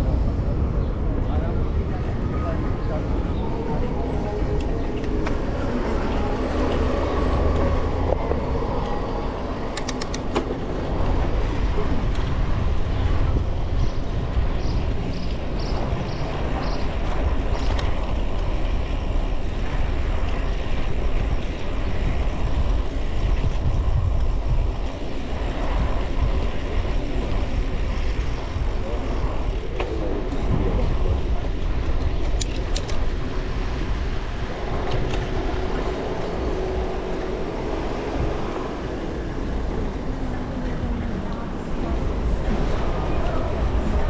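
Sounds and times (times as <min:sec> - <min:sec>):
motor traffic: 0:00.0 - 0:44.0
road noise: 0:00.0 - 0:44.0
wind on microphone: 0:00.0 - 0:44.0
sharp clicks: 0:09.7 - 0:10.5.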